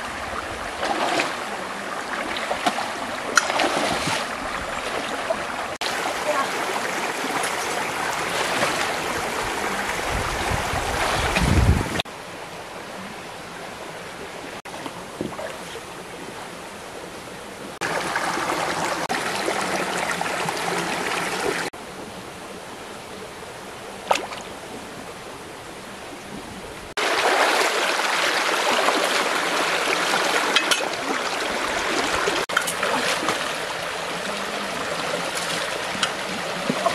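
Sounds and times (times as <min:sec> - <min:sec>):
stream rushing over stones: 0:00.0 - 0:12.2, 0:17.8 - 0:21.7, 0:26.9 - 0:36.9.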